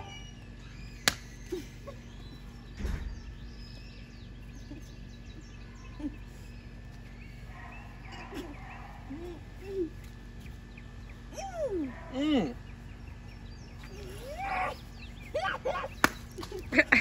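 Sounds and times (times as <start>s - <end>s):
birds chirping: 0.0s - 17.0s
low steady hum: 0.0s - 17.0s
tortilla slapping a face: 1.0s - 1.3s, 15.9s - 16.7s.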